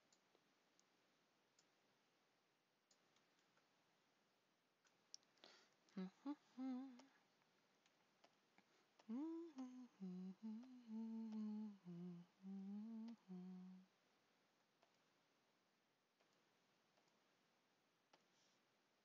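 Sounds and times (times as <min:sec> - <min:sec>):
faint clicks: 0:04.8 - 0:13.8, 0:14.8 - 0:15.1, 0:16.2 - 0:17.3
woman humming a tune: 0:05.9 - 0:07.2, 0:09.0 - 0:13.9.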